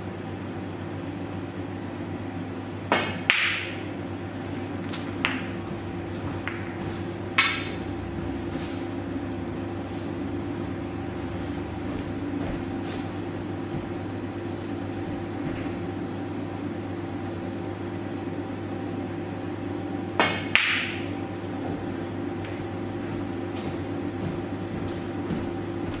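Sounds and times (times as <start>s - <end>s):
steady room hum: 0.0s - 26.0s
sharp click of balls colliding: 2.9s - 3.8s, 20.2s - 21.1s
cue tip striking ball: 2.9s - 3.9s, 5.0s - 5.6s, 6.2s - 7.9s, 20.2s - 21.3s.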